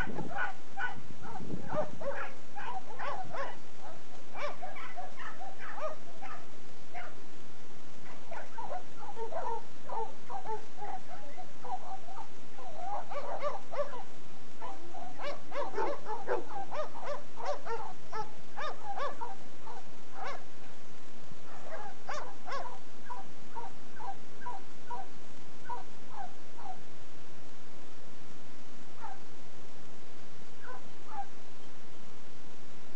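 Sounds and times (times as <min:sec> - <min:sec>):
dogs barking and yipping: 0:00.0 - 0:07.2, 0:08.0 - 0:20.5, 0:21.4 - 0:26.8, 0:29.0 - 0:29.2, 0:30.6 - 0:31.4.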